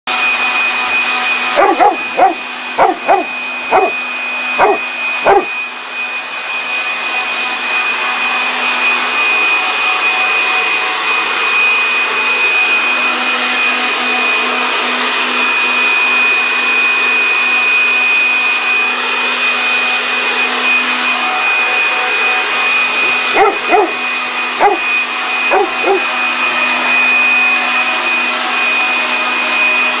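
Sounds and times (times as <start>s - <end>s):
electric leaf blower whining: 0.1s - 30.0s
dog barking: 1.6s - 4.0s, 4.6s - 5.6s, 23.1s - 24.0s, 24.6s - 24.9s, 25.5s - 26.1s.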